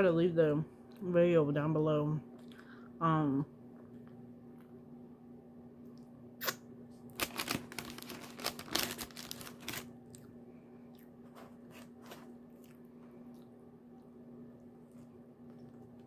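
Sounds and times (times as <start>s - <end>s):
steady hum: 0.0s - 16.0s
crunching and rustling: 7.0s - 13.5s.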